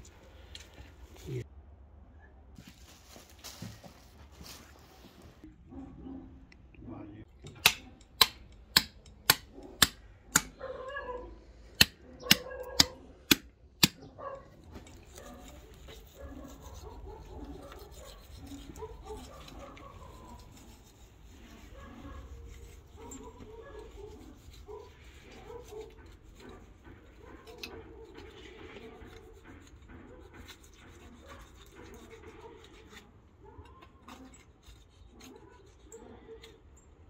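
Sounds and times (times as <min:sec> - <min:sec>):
faint handling sounds: 0:00.0 - 0:01.5, 0:02.5 - 0:05.8, 0:14.4 - 0:37.0.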